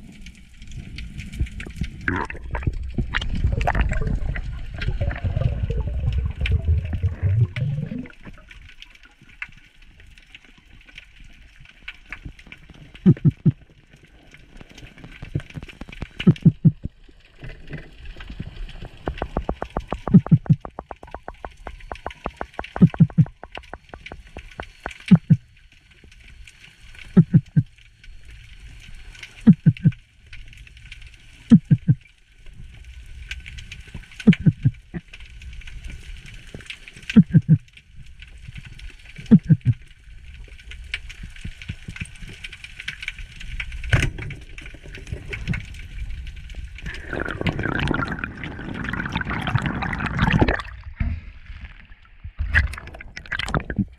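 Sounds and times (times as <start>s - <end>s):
water rushing: 2.0s - 8.8s, 15.5s - 25.6s, 46.8s - 51.0s, 51.8s - 53.9s.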